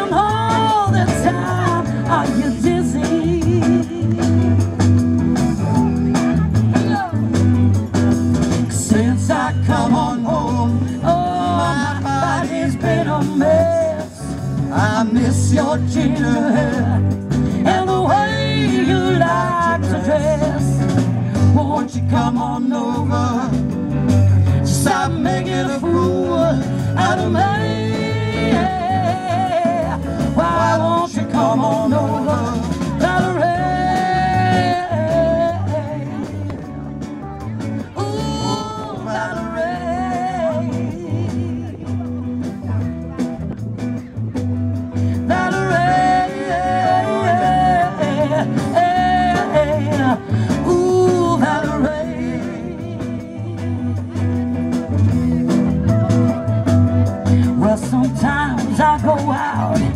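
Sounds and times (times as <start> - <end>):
female vocal singing: 0.0 - 4.3, 24.7 - 36.4, 45.2 - 53.9
blues-rock band playing: 0.0 - 59.9.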